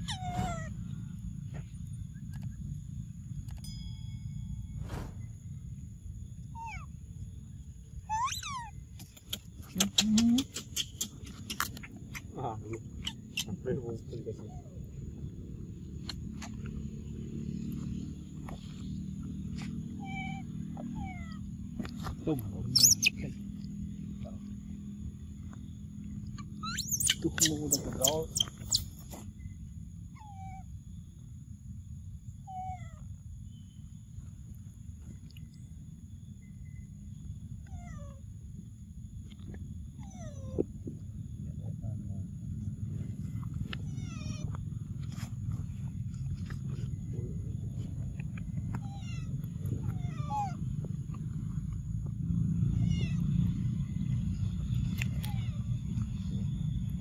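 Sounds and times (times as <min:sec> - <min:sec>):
macaque coo calls: 0:00.0 - 0:00.8, 0:08.1 - 0:14.8, 0:22.6 - 0:23.7, 0:26.6 - 0:28.9
monkey squealing: 0:00.0 - 0:00.8, 0:06.6 - 0:06.9, 0:08.1 - 0:13.6, 0:22.6 - 0:23.4, 0:26.4 - 0:29.1
steady low rumble: 0:33.2 - 0:57.0.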